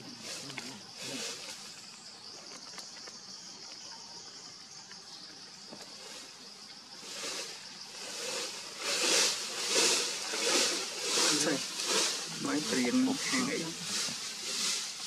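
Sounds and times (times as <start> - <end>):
insects buzzing: 0.0 - 15.0
noisy bursts: 7.1 - 15.0.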